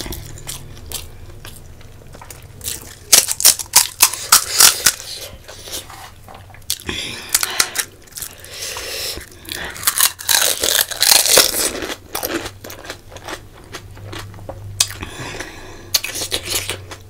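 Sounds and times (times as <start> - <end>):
crisp shell crunching: 2.0 - 5.2, 9.2 - 14.2.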